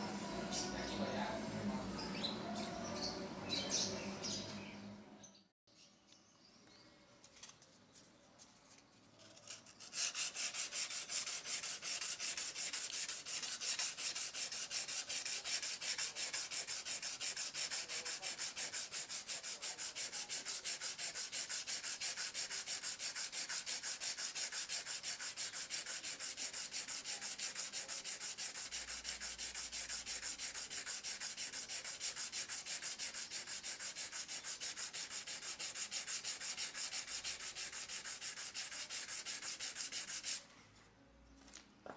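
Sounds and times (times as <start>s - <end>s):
sandpaper rubbing on metal: 9.4s - 40.5s.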